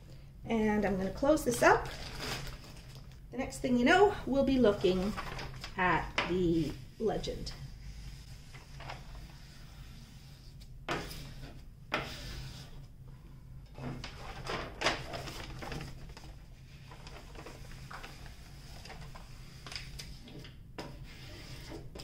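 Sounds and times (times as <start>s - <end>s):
paper rustling and crackling: 1.7s - 3.2s, 4.8s - 6.8s, 8.3s - 9.6s, 13.8s - 22.0s.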